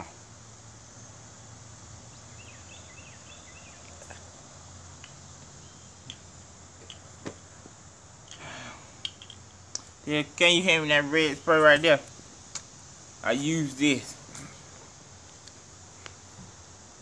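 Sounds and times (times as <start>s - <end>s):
small metal parts clicking: 9.0s - 9.5s.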